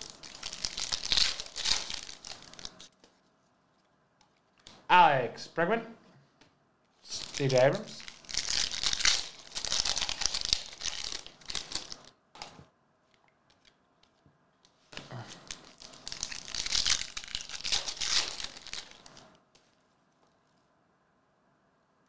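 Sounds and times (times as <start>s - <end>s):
foil wrappers tearing and crinkling: 0.0s - 2.9s, 7.1s - 12.1s, 15.0s - 19.2s.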